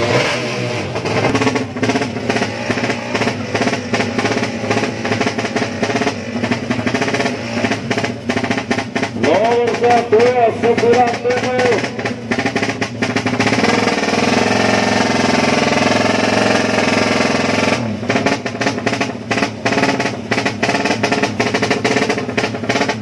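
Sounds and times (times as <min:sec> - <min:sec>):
motorcycle engine revving: 0:00.0 - 0:23.0.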